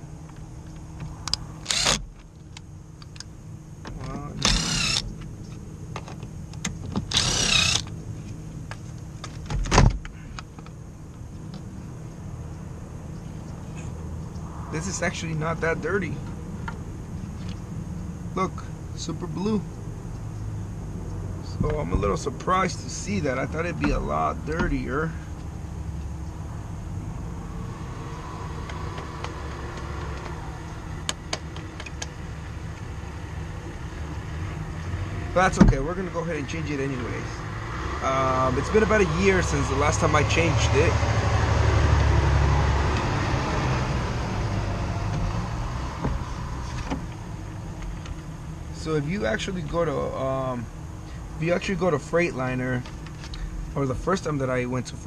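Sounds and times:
vehicle engine idling: 0.0 - 40.9
cordless screwdriver motor whirring: 1.6 - 2.0, 4.3 - 5.1, 7.1 - 7.9.

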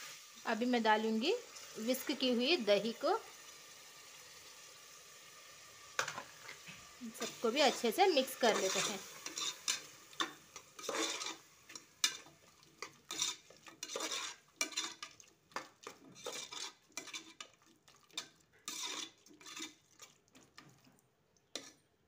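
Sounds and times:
spatula scraping metal pot: 6.4 - 21.9.

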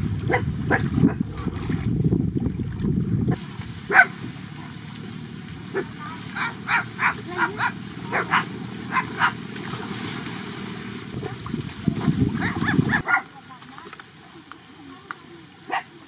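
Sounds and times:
animal giving sharp calls: 5.7 - 9.4.

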